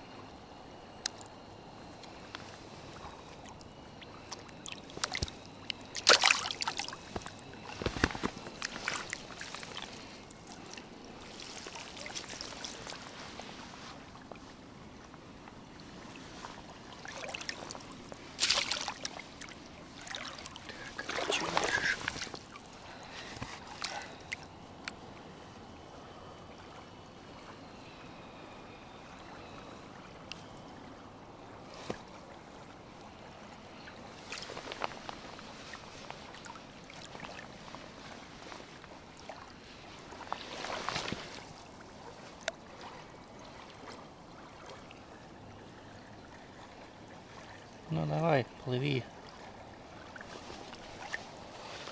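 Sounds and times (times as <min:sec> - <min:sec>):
water lapping at shore: 0:00.0 - 0:51.9
water splashing: 0:02.5 - 0:13.8, 0:16.0 - 0:24.4.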